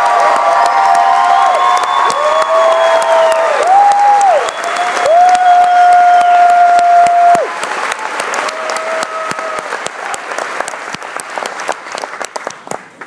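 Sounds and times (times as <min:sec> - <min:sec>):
crowd whooping: 0:00.0 - 0:10.2
audience clapping and cheering: 0:00.0 - 0:13.0.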